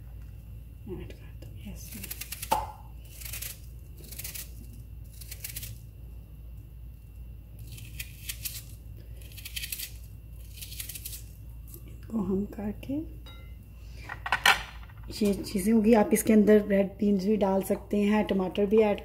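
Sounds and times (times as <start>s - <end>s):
knife slicing onion: 1.9s - 5.8s, 7.6s - 11.4s.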